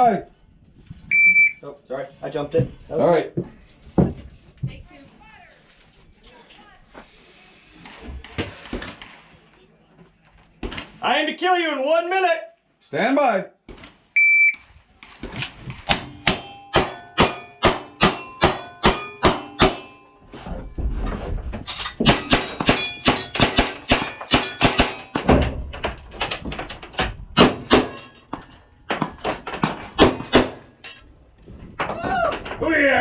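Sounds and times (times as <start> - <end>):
steel targets ringing: 16.0 - 20.3, 21.9 - 25.3.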